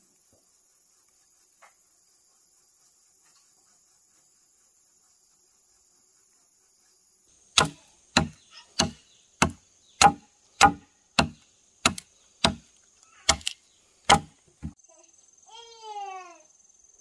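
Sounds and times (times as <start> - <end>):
chopping wood: 7.6 - 12.7, 13.3 - 14.8.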